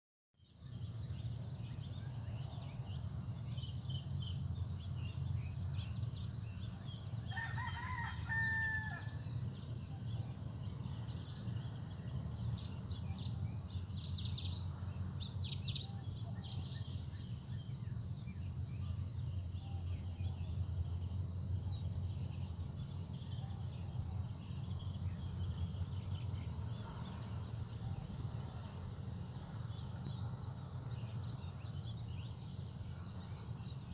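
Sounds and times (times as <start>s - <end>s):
rooster crowing: 7.3s - 9.4s.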